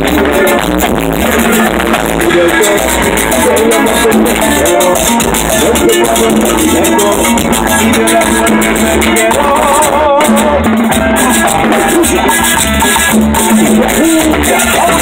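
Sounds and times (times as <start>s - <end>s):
drum kit with timbales: 0.0s - 15.0s
electric bass: 0.0s - 15.0s
fast rattling percussion: 0.0s - 15.0s
live band dance music: 0.0s - 15.0s.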